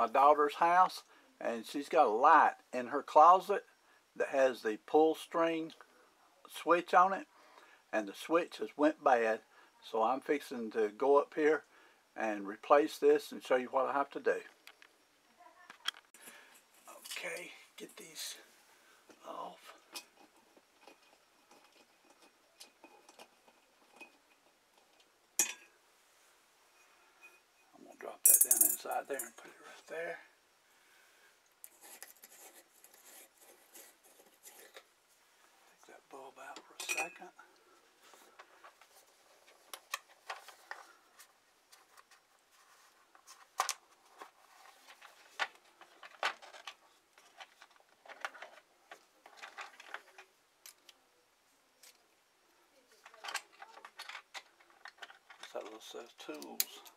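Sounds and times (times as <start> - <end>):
glass globe and metal fittings clinking: 25.4 - 25.7, 26.8 - 29.5, 36.8 - 37.3.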